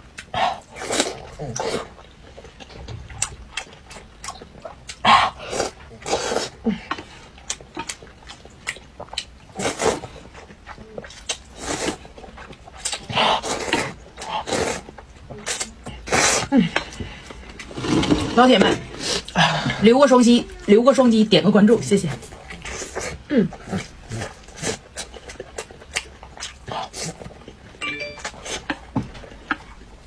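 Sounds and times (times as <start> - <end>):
chewing sounds: 0.1 - 17.7, 22.2 - 27.8
person slurping noodles: 5.4 - 6.6, 13.4 - 14.8, 17.6 - 19.5.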